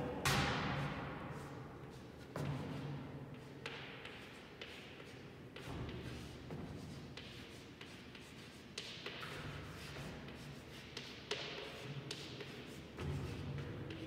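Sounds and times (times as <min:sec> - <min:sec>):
chalk scratching on blackboard: 0:03.3 - 0:14.0.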